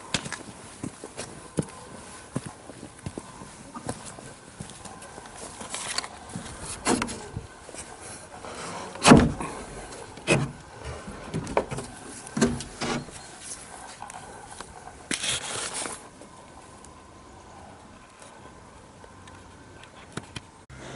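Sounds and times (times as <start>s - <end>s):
wooden door knocks and clunks: 9.0s - 9.4s.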